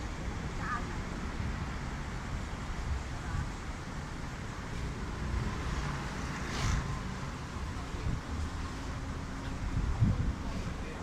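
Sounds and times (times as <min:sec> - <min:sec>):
street traffic: 0:00.0 - 0:11.0
wind buffeting microphone: 0:06.2 - 0:11.0
brief hiss: 0:06.4 - 0:07.0.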